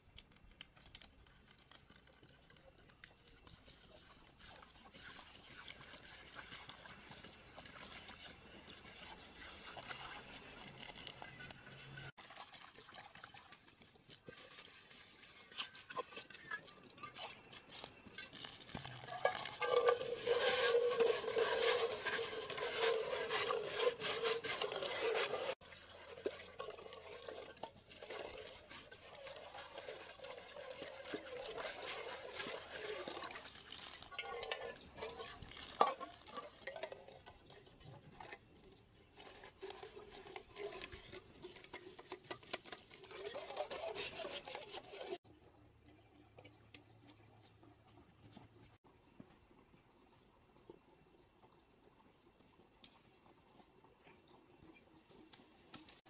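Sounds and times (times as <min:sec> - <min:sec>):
leaves scrubbing metal cookware: 0:03.3 - 0:12.6, 0:14.1 - 0:45.2
water running from hose: 0:03.3 - 0:37.1.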